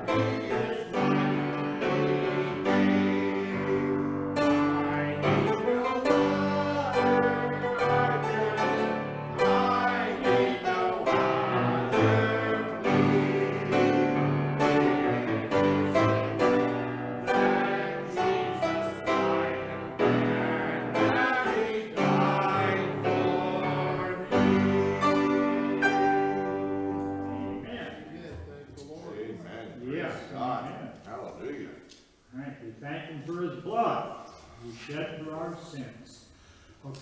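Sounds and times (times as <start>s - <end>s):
slow piano hymn: 0.0s - 29.0s.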